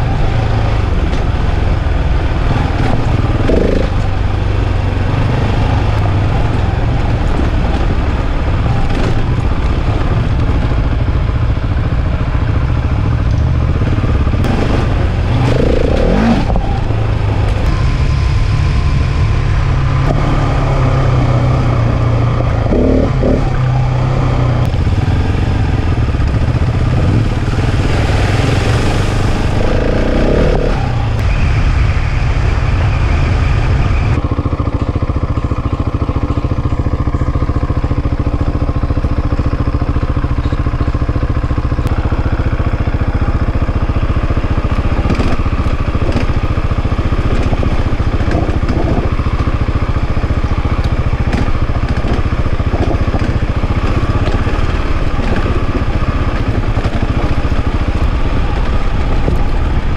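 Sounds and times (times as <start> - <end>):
motorcycle engine running: 0.0 - 59.9
wind rush: 24.6 - 34.2.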